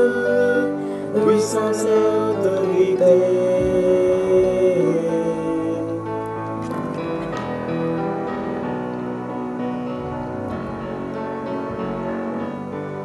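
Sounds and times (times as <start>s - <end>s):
keyboard playing steady chords: 0.0s - 13.0s.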